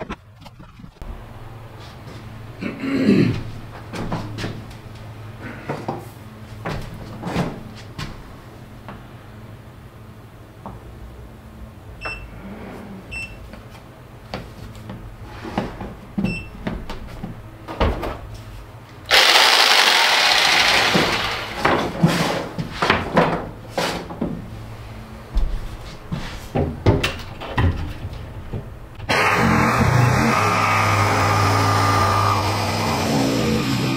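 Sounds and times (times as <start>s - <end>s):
knocks and clatter of handling: 26.5s - 28.8s.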